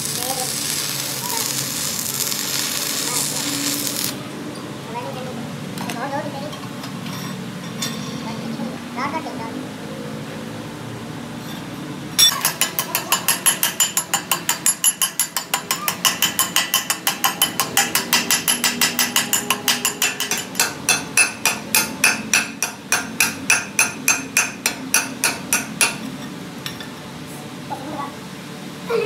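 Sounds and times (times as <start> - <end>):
chipping hammer striking metal: 12.2 - 26.8.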